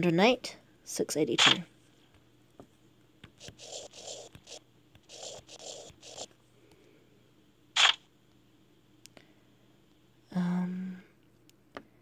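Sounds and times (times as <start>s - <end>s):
stylus scratching on touchscreen: 3.4s - 6.3s.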